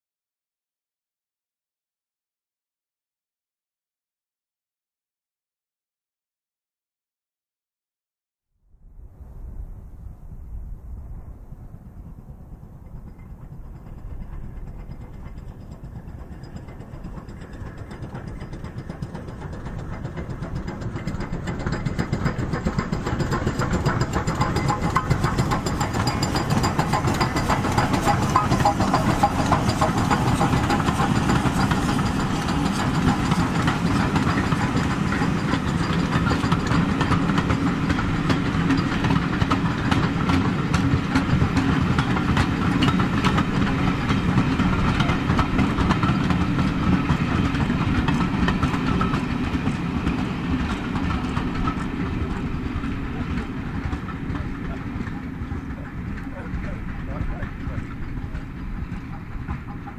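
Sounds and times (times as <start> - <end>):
steam locomotive exhaust beats: 9.0 - 59.9
locomotive clanking motion: 12.1 - 59.9.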